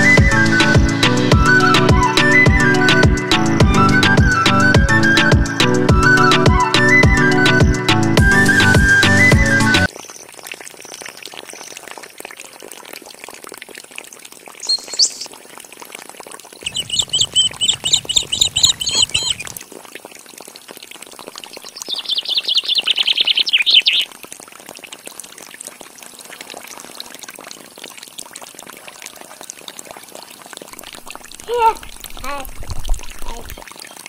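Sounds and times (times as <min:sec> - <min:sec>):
water pouring onto wet ground: 0:09.9 - 0:34.0
birds chirping: 0:14.6 - 0:15.3, 0:16.7 - 0:19.6, 0:21.6 - 0:24.1.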